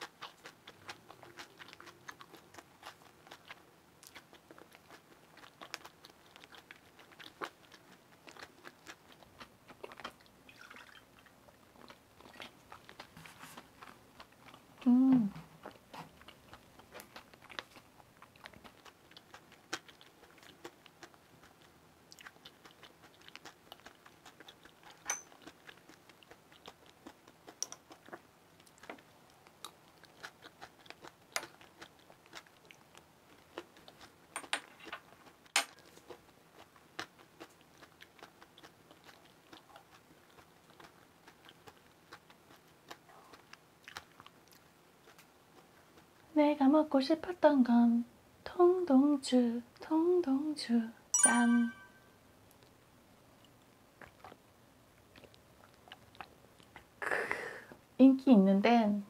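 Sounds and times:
chewing crisp food: 0:00.0 - 0:47.4, 0:51.9 - 0:57.0.

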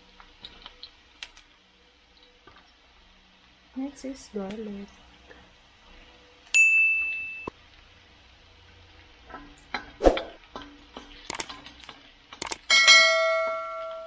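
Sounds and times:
garlic and onion frying: 0:00.0 - 0:14.0
bright single-tone ding: 0:06.5 - 0:07.5, 0:12.8 - 0:14.0
quick light clicks: 0:11.3 - 0:11.5, 0:12.4 - 0:12.6.

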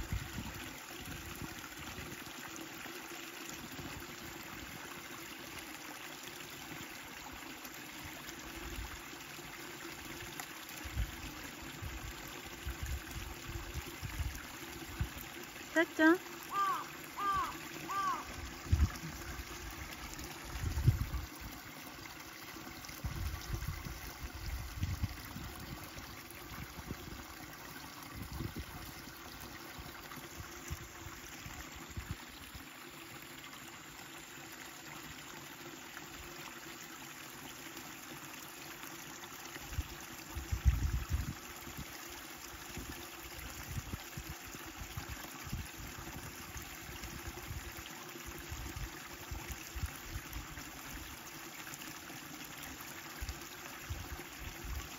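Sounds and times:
flowing water rushing: 0:00.0 - 0:54.9.

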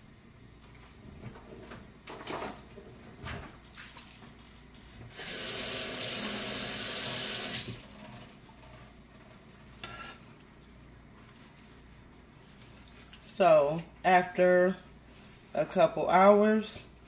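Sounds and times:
kitchen faucet running: 0:05.1 - 0:08.0.

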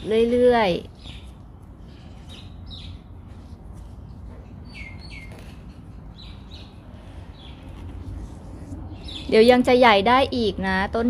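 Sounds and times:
small bird chirping: 0:02.2 - 0:03.1, 0:04.6 - 0:07.8.

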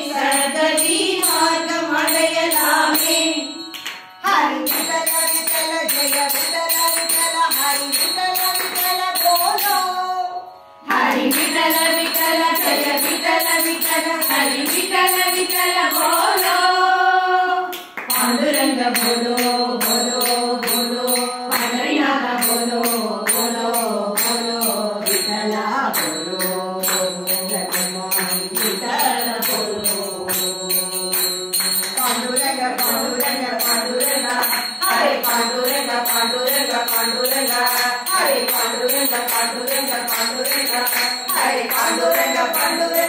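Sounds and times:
small hand cymbals: 0:00.0 - 0:16.8, 0:18.1 - 0:43.0
women singing in unison: 0:00.0 - 0:43.0
hand claps: 0:03.7 - 0:09.7, 0:11.0 - 0:14.9, 0:17.7 - 0:21.8, 0:24.2 - 0:33.3, 0:36.1 - 0:43.0.

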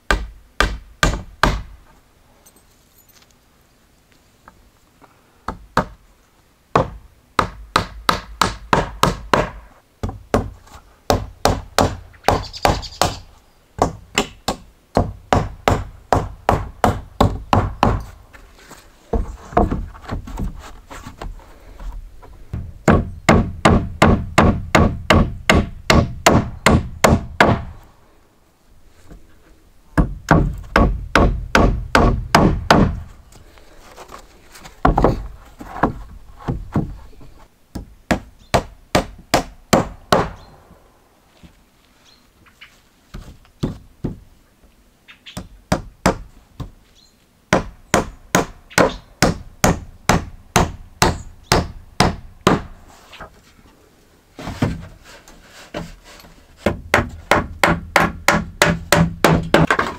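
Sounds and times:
hammer driving nails into wood: 0:56.6 - 0:59.9.

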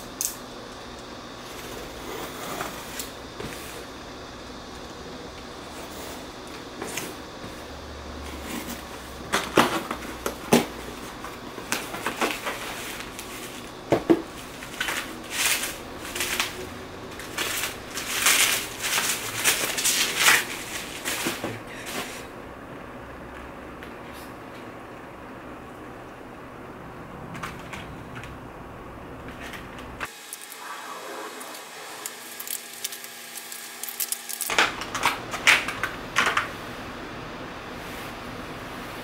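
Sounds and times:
plastic crinkling: 0:11.1 - 0:21.4, 0:31.9 - 0:35.9
packing tape slit: 0:31.4 - 0:35.9.

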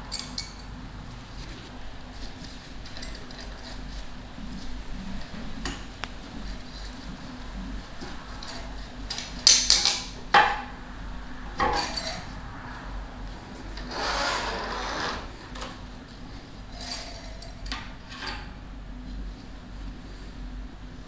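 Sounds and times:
metal scraping rub: 0:11.4 - 0:18.6.

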